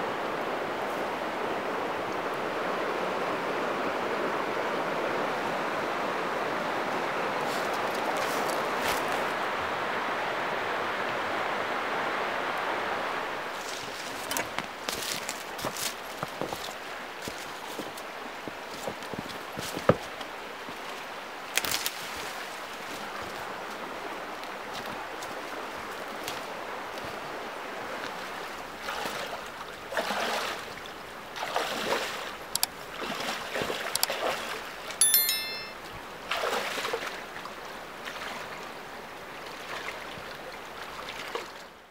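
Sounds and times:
shallow river flowing: 0:00.0 - 0:41.9.

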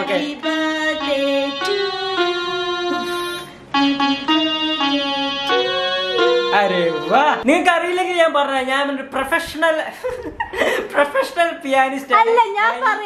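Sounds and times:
electronic keyboard melody: 0:00.0 - 0:07.5.

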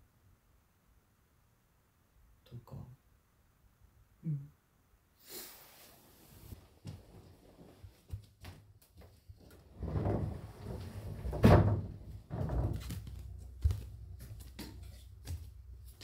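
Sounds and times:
footsteps and soft thuds: 0:06.5 - 0:16.0
bedding rustling: 0:09.3 - 0:15.2.

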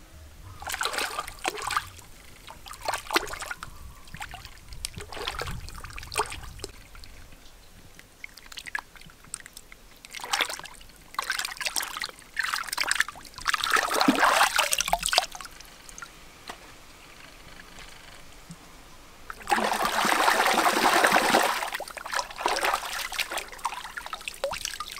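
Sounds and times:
fish splashing in water: 0:00.5 - 0:07.3, 0:08.2 - 0:16.2, 0:19.3 - 0:24.9.

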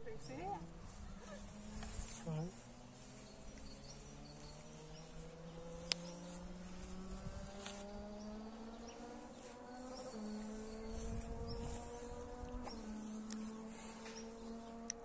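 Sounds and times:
faint buzzing drone rising in pitch: 0:00.0 - 0:15.0.

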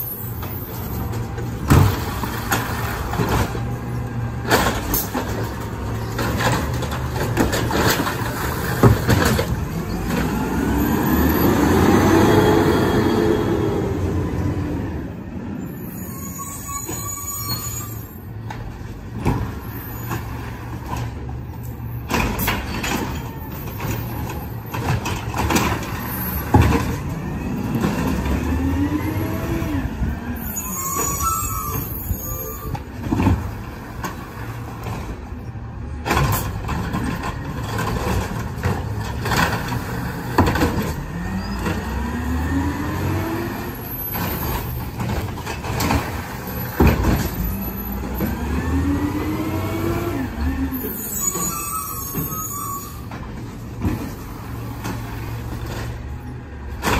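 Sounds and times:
carts clanking and knocking: 0:00.0 - 0:11.8, 0:18.2 - 0:56.9
garbage truck engine revving: 0:01.8 - 0:15.0, 0:37.7 - 0:52.0.

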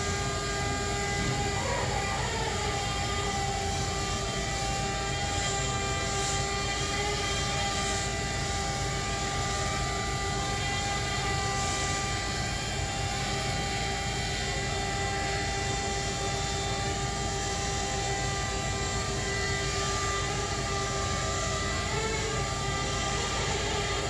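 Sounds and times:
steady droning hum: 0:00.0 - 0:24.0.

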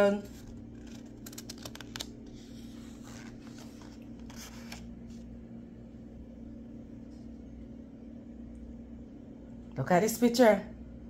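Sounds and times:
book pages rustling: 0:00.0 - 0:05.4
steady low hum: 0:00.0 - 0:11.0.

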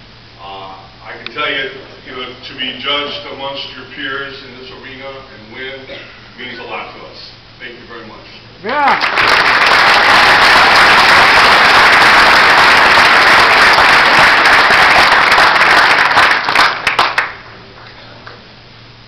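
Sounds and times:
audience applauding: 0:08.6 - 0:17.4.

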